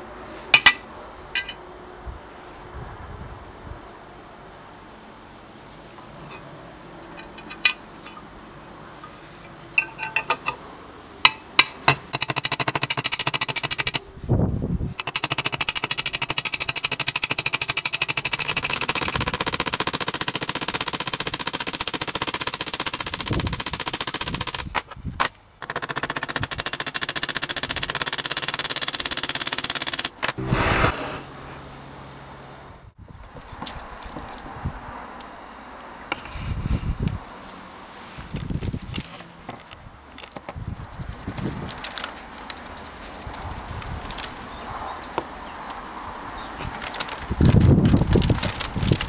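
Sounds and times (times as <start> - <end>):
metal parts clicking and clanking: 1.4 - 1.6, 6.0 - 8.2, 9.4 - 10.6.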